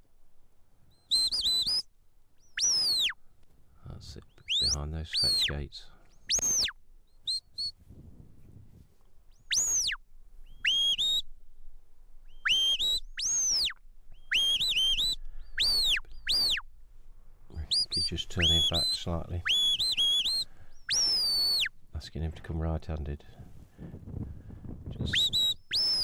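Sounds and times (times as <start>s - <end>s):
sharp high whistles: 1.0s - 1.9s, 2.6s - 3.2s, 4.5s - 5.5s, 6.2s - 7.8s, 9.4s - 11.3s, 12.3s - 16.6s, 17.7s - 21.7s, 25.0s - 26.0s.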